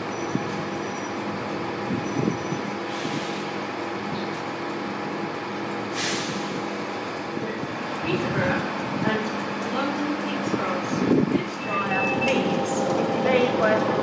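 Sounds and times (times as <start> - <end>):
locomotive fans humming: 0.0 - 14.0
air hiss: 6.0 - 6.6.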